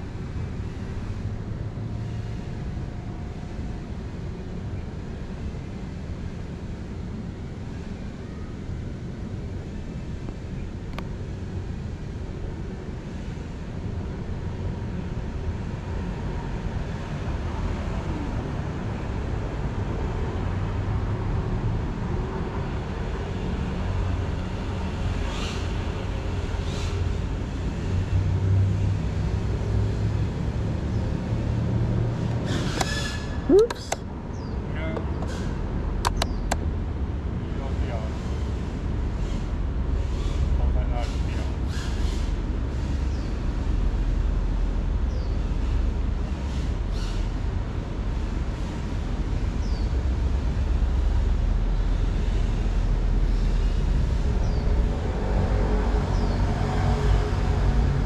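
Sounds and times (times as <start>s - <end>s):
low outdoor rumble: 0.0s - 58.0s
brief clicks: 36.0s - 36.6s.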